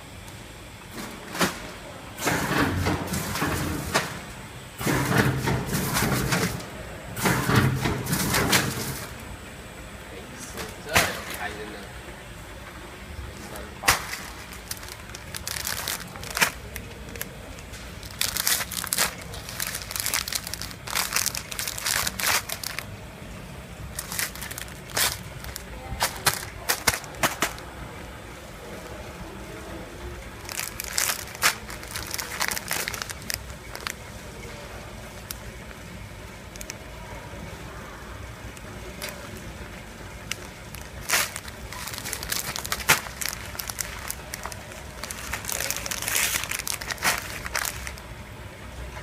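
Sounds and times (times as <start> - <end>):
steady low hum: 0.0 - 49.0
plastic bags crinkling: 13.2 - 23.0, 23.8 - 27.8, 30.3 - 35.8, 38.8 - 39.5, 40.1 - 48.0.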